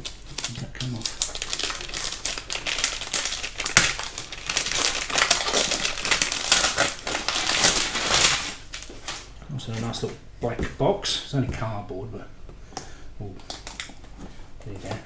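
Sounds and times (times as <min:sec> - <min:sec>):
plastic film crinkling: 0:00.0 - 0:10.0.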